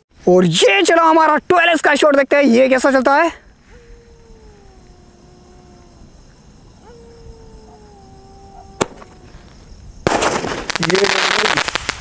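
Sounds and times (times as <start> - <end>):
crickets chirping: 0.1 - 12.0
sharp crack: 8.7 - 12.0.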